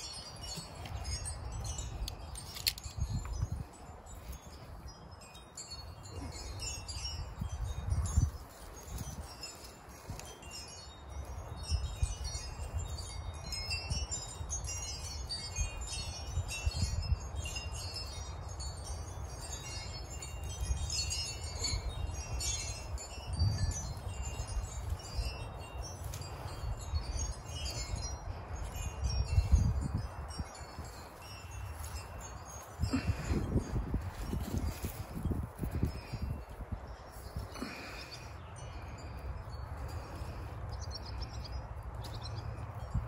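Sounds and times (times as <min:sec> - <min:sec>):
metal wind chimes tinkling: 0:00.0 - 0:43.0.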